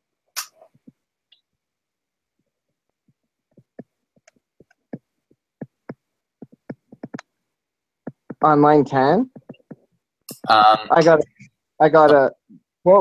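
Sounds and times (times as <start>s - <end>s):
keyboard and mouse clicks: 3.5s - 7.3s.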